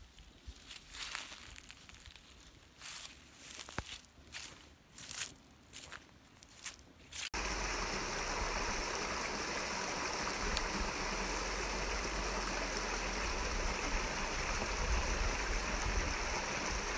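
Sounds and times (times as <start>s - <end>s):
creek water flowing over stones: 7.2s - 16.9s.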